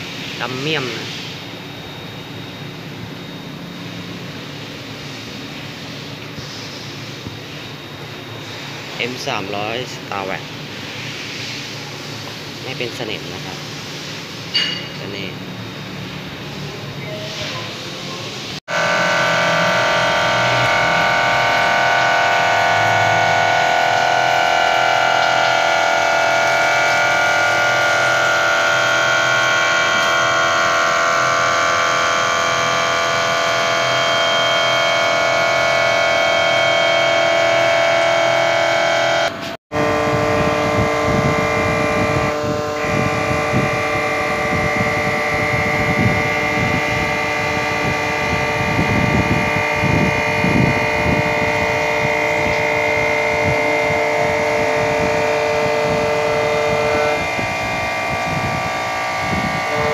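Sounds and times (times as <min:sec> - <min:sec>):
milling machine cutting metal: 0:18.7 - 0:59.9.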